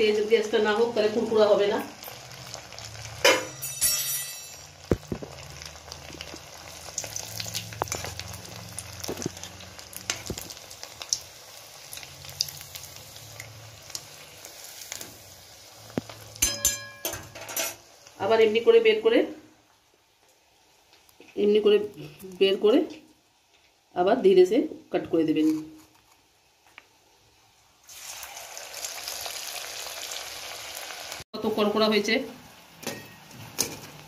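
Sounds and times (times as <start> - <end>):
food sizzling in hot oil: 0.0 - 25.3, 26.4 - 34.0
metal clinks: 3.4 - 4.7.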